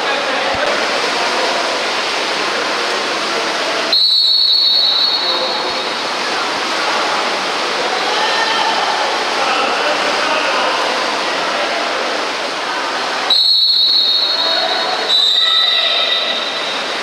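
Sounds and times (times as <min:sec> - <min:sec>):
pool background noise: 0:00.0 - 0:17.0
referee's whistle blast: 0:03.9 - 0:05.8, 0:13.3 - 0:16.7.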